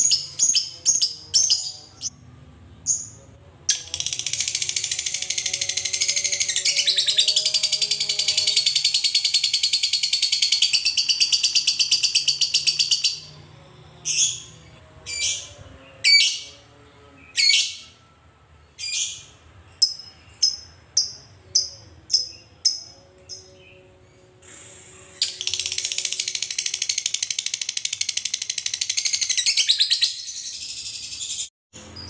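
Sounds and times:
shrill bird chirps: 0:03.8 - 0:13.4, 0:25.2 - 0:32.0.

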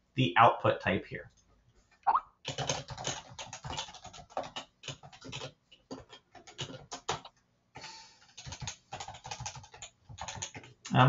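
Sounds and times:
computer keyboard typing: 0:02.5 - 0:11.0.

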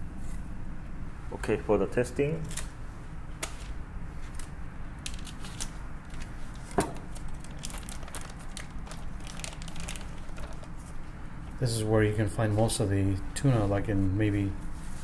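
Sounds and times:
plastic bag crinkling and tearing: 0:04.3 - 0:11.0.

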